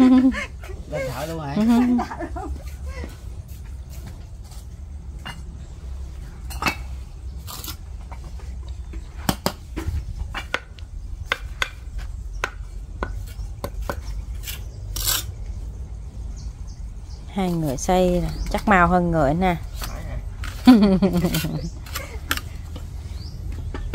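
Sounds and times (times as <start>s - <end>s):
trowel clinking and scraping mortar: 13.2s - 15.4s, 19.7s - 22.5s.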